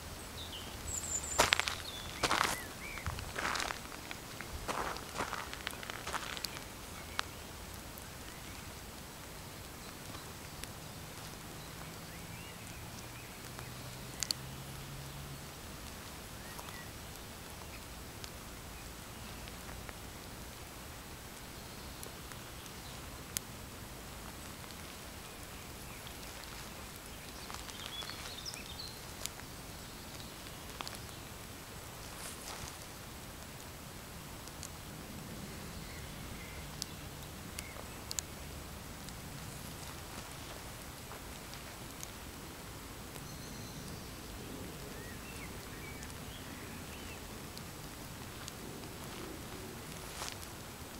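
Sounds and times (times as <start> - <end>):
steady outdoor hiss: 0.0 - 50.9
shoes rustling through plants: 0.8 - 6.8, 25.8 - 29.4, 32.0 - 33.0, 39.5 - 41.8, 49.0 - 50.5
footsteps on soil and gravel: 0.8 - 7.3, 25.8 - 29.4, 32.0 - 33.0, 39.5 - 41.9, 49.9 - 50.5
light ticks: 0.8 - 14.8, 15.4 - 29.5, 30.1 - 33.8, 34.4 - 35.3, 35.9 - 42.3, 47.0 - 50.6.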